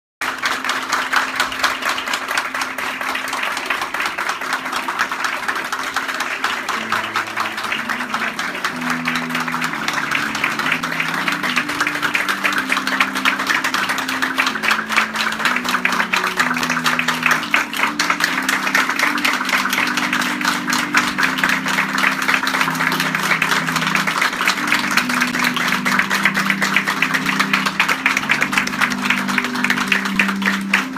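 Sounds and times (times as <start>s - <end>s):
background music: 0.2s - 30.9s
crowd applauding: 0.2s - 30.9s.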